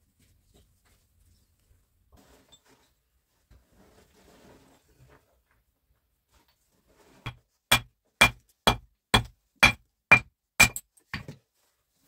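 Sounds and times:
steel pick striking stone: 7.3 - 11.2.

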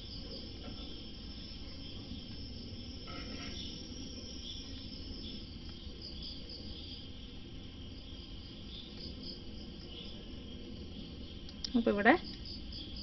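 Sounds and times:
high-pitched background hiss: 0.0 - 13.0.

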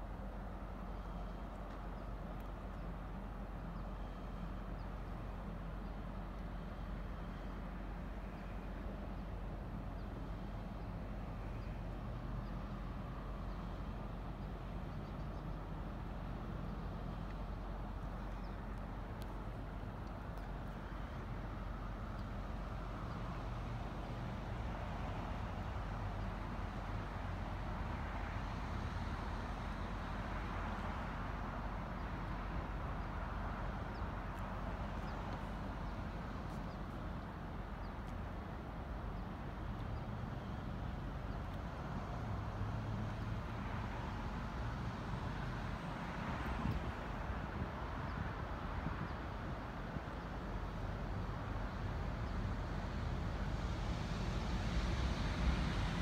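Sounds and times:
ship engines droning: 0.0 - 28.0.

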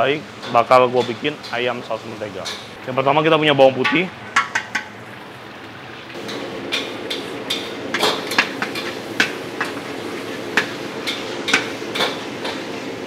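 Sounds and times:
garlic sizzling in oil: 3.9 - 13.0.

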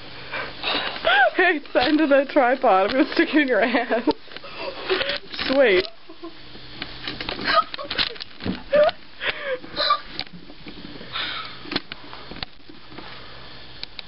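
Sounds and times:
girl laughing breathlessly: 0.3 - 1.4, 4.4 - 5.3, 7.4 - 10.1, 11.1 - 11.6
knocks and rustles: 7.0 - 8.7.

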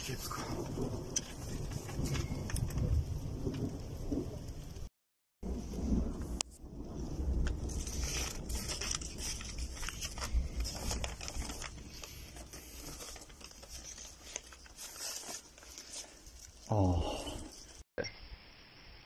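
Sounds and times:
steady low rumble: 0.3 - 14.4
paper rustling and crinkling: 7.4 - 16.7.

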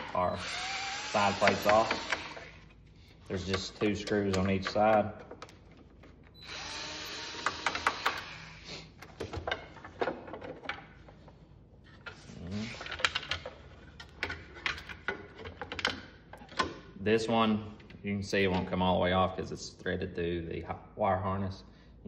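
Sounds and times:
screws clicking and rattling: 0.4 - 2.6.

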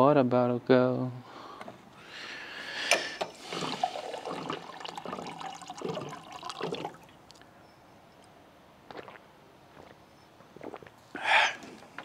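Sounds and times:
water sloshing in a bottle: 3.2 - 7.4.

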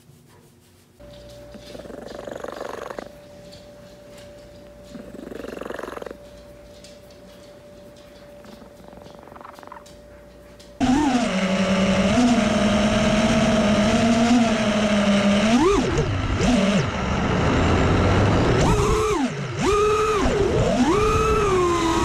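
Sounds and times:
drone electric motors whining: 10.8 - 22.0.

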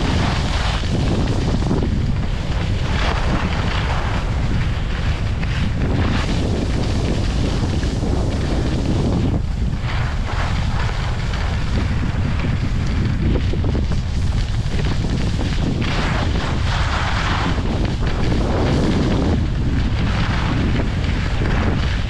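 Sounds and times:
skis scraping on snow: 0.0 - 22.0
wind buffeting microphone: 0.0 - 22.0.

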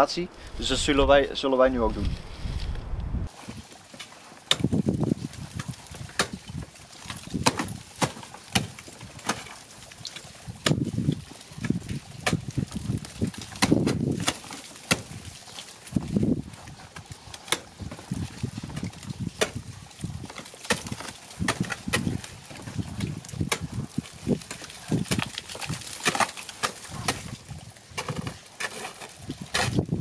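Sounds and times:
ice axe striking ice: 4.0 - 16.4, 17.5 - 22.4, 23.0 - 27.4, 28.0 - 30.0.

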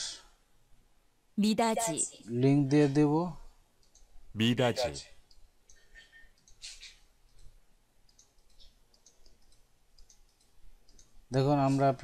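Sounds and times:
computer mouse clicks: 3.8 - 4.1, 5.2 - 11.2.

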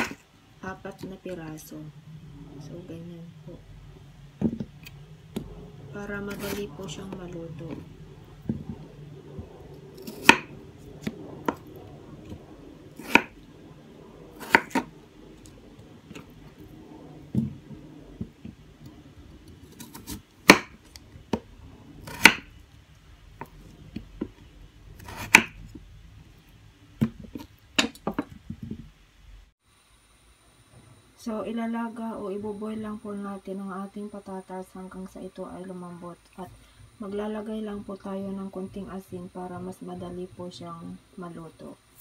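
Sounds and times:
knife chopping on wooden board: 10.0 - 11.6, 13.0 - 13.3, 14.4 - 14.9, 19.8 - 20.8, 22.0 - 22.5, 25.0 - 25.6.

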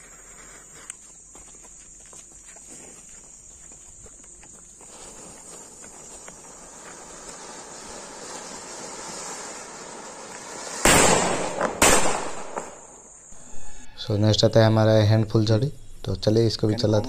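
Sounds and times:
ground fountain firework hissing: 0.0 - 0.9, 4.7 - 13.3
firecracker bangs: 6.6 - 13.0.

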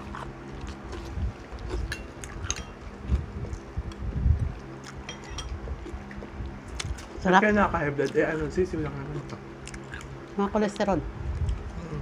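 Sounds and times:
steady low hum: 0.0 - 12.0
spoons clinking on bowls: 1.9 - 2.8, 5.1 - 5.6.

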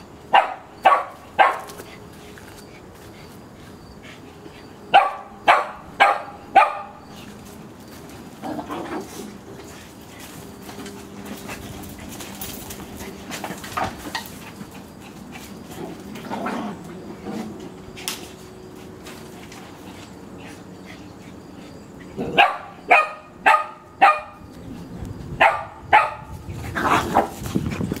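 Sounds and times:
dogs barking: 0.3 - 2.0, 4.9 - 7.2, 22.1 - 24.8, 25.4 - 27.3.

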